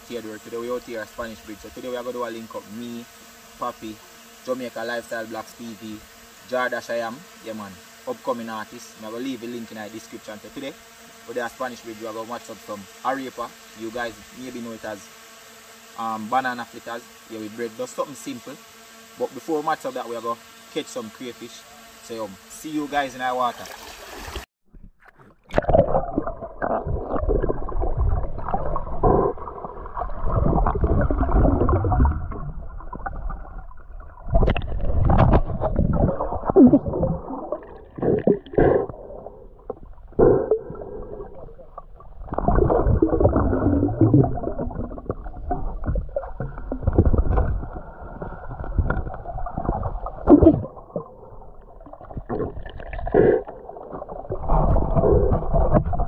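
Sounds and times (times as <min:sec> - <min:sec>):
river water sloshing and gurgling: 0:23.6 - 0:24.4.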